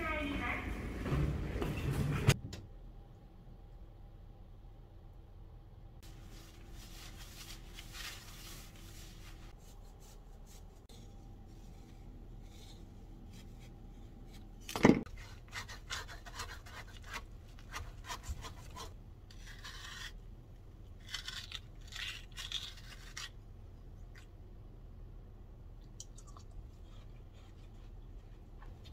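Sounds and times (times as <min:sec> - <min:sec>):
hands rubbing melon rind: 0:06.1 - 0:20.2, 0:20.9 - 0:23.4
knife cutting through rind: 0:21.0 - 0:23.4.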